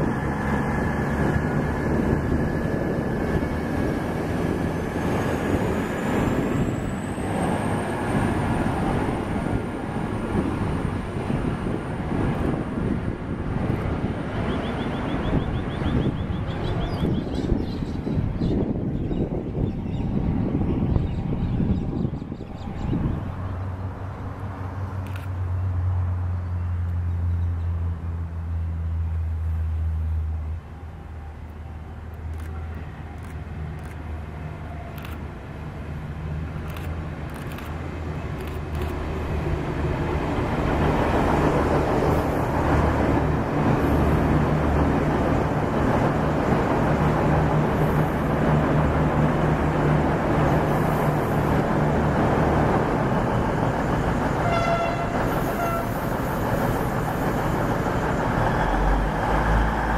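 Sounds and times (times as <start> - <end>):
train passing: 0.0 - 19.4, 22.6 - 59.9
train horn toot: 54.4 - 56.4.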